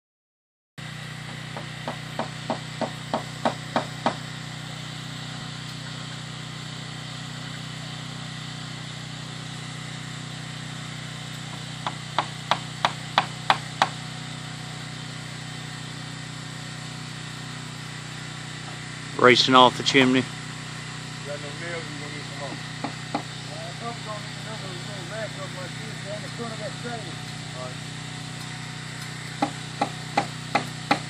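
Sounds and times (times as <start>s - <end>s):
hammer driving nails into wood: 1.3s - 4.2s, 11.5s - 14.0s, 22.8s - 23.3s, 29.3s - 31.0s.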